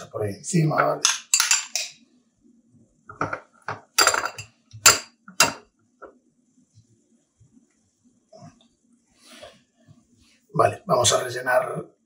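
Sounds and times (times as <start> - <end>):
metal spoon clinking on bowl: 1.0 - 2.0, 4.0 - 5.6.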